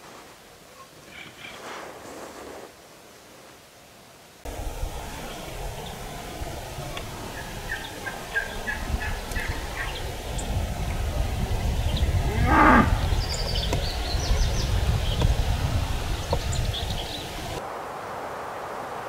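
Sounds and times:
turkey gobbling: 5.2s - 10.4s.

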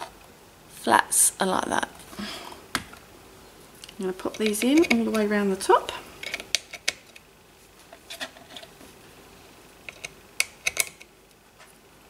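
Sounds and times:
wooden pieces clicking into slots: 9.9s - 11.1s.

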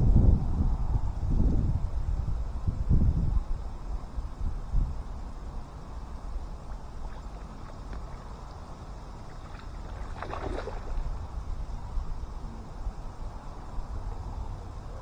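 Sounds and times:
fish splashing in water: 6.6s - 11.2s.

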